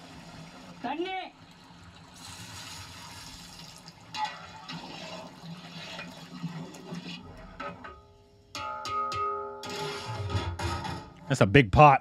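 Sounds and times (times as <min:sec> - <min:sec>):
water pouring into metal pot: 0:00.0 - 0:08.0.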